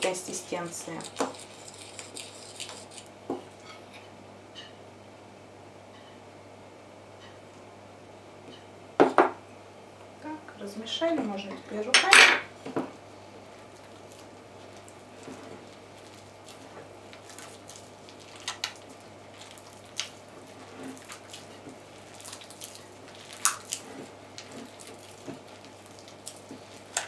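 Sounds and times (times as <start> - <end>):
hands kneading dough: 13.4 - 27.0.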